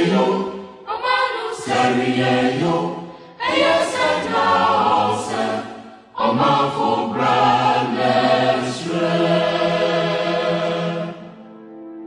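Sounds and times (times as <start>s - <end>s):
choir singing sustained chords: 0.0s - 12.0s.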